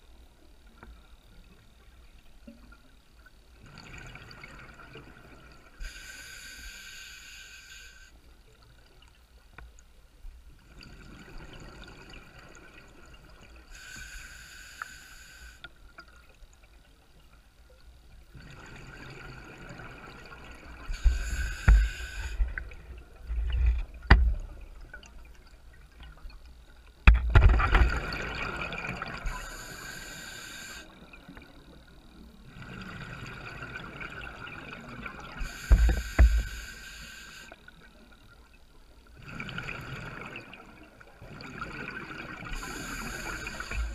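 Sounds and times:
diver breathing through regulator: 0:20.9 - 0:22.8, 0:29.2 - 0:30.9, 0:35.4 - 0:37.6, 0:42.6 - 0:43.9.

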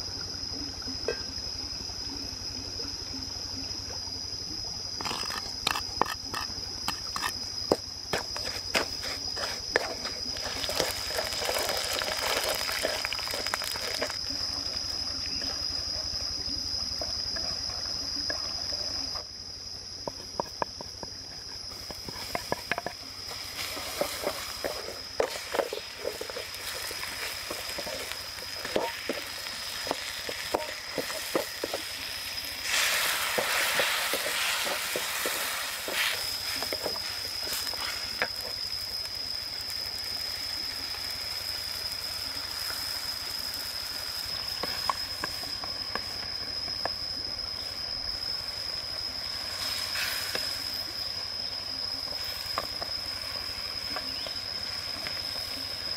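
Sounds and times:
wooden spatula scraping wok: 0:08.1 - 0:14.2, 0:21.7 - 0:38.5
fish sizzling in oil: 0:09.0 - 0:15.0, 0:21.7 - 0:46.8, 0:48.5 - 0:55.9
oil trickling into wok: 0:09.4 - 0:14.8.

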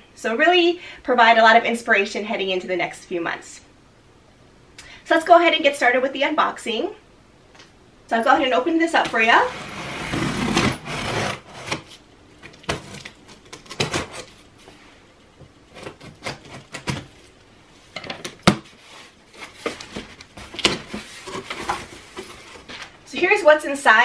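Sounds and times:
scissors cutting packing tape: 0:12.7 - 0:14.3, 0:15.7 - 0:17.1.

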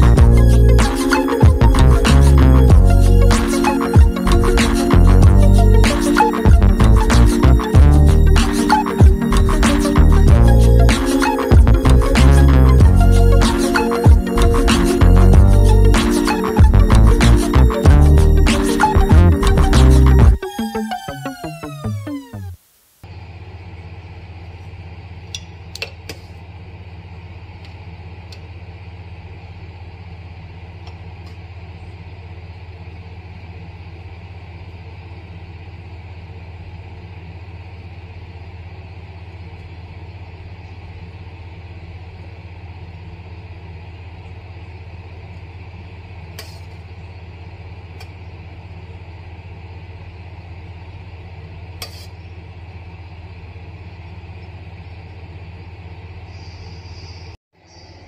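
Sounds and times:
steady low hum: 0:00.0 - 0:22.6.

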